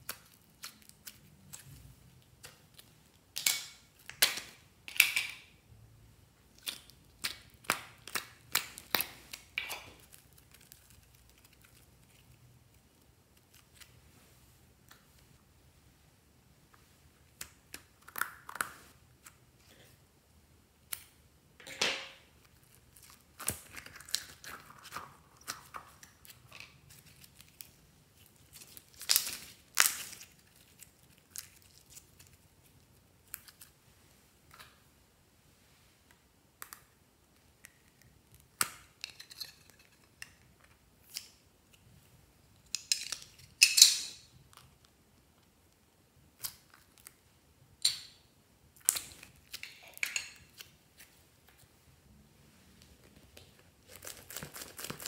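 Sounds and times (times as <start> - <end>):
crinkles: 6.5 - 14.1, 22.3 - 33.8, 52.8 - 55.0.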